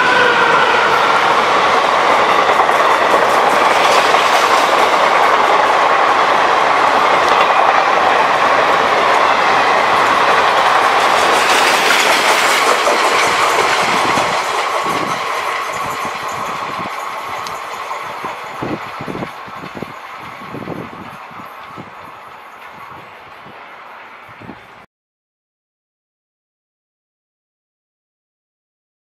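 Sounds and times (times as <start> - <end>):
train rushing past: 0.0 - 24.9.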